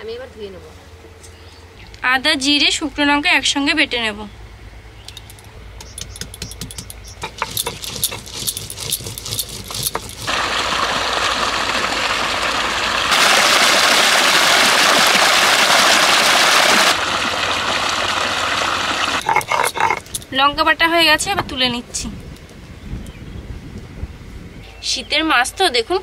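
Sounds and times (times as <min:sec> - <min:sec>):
grinding stone knocking: 0:05.1 - 0:10.3, 0:19.2 - 0:20.3
stone grinding slab scraping: 0:05.8 - 0:10.3, 0:19.2 - 0:20.3
water gushing from a pipe: 0:08.2 - 0:20.2.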